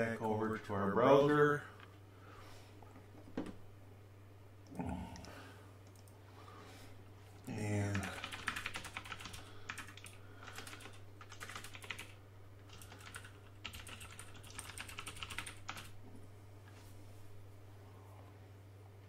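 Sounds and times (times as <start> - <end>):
steady low hum: 0.0 - 19.0
keyboard typing: 5.8 - 6.2, 7.8 - 15.9.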